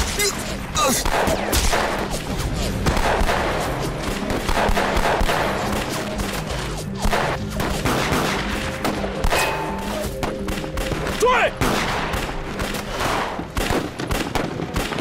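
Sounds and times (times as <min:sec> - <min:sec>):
rapid pistol gunfire: 0:01.0 - 0:02.1, 0:02.9 - 0:03.6, 0:04.4 - 0:05.9, 0:11.6 - 0:15.0.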